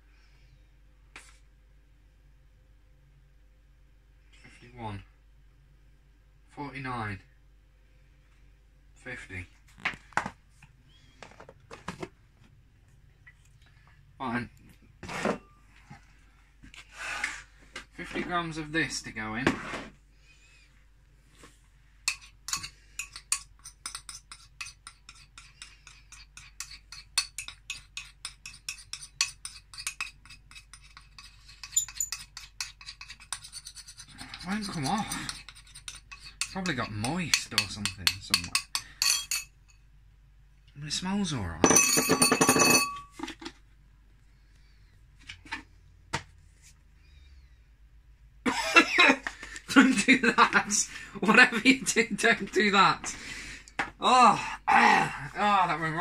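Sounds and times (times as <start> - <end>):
kitchenware clinking taps: 41.7 - 43.2.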